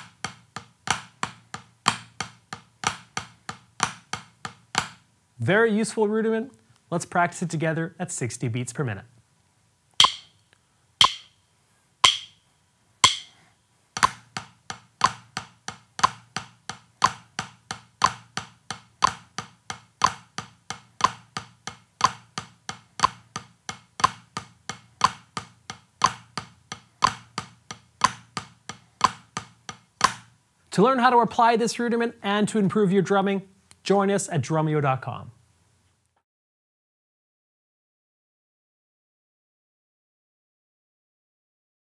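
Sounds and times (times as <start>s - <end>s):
drumsticks on a practice pad: 0.0s - 5.1s, 10.0s - 11.4s, 12.0s - 30.4s
count-in clicks: 10.0s - 10.4s, 11.0s - 11.3s, 12.0s - 12.4s.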